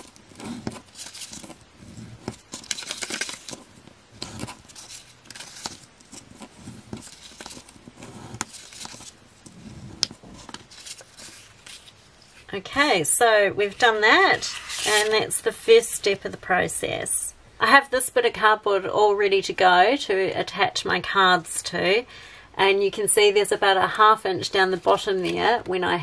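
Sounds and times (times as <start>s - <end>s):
card creasing and crinkling: 0.0s - 12.5s, 13.6s - 15.3s.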